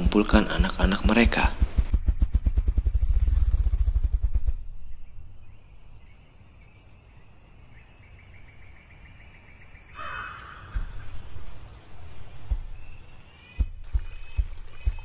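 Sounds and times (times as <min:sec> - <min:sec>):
grouse wing drumming: 0:00.0 - 0:05.2, 0:10.0 - 0:15.0.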